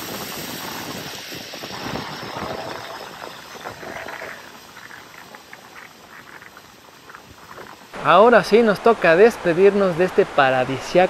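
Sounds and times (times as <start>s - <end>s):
water rushing and splashing: 0.0s - 11.0s.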